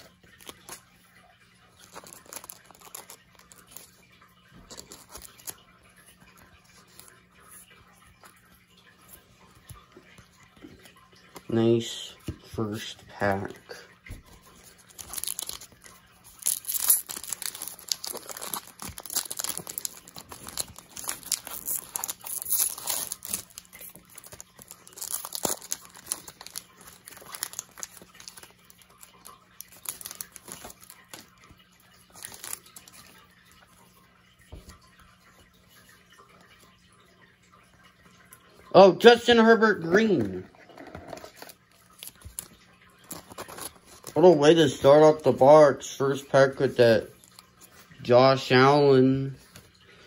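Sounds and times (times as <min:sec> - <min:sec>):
cards rustling: 0:01.7 - 0:08.4, 0:12.2 - 0:33.3, 0:39.7 - 0:45.5
foil wrapper tearing and crinkling: 0:01.8 - 0:03.9, 0:14.7 - 0:33.2, 0:41.0 - 0:44.2.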